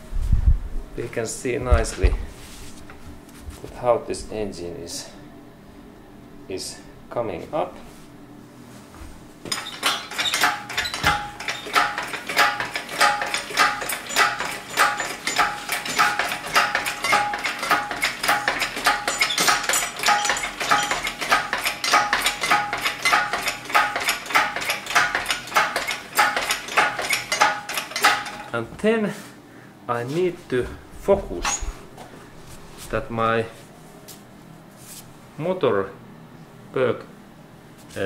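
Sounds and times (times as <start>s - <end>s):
steel chains clinking: 9.5s - 28.5s.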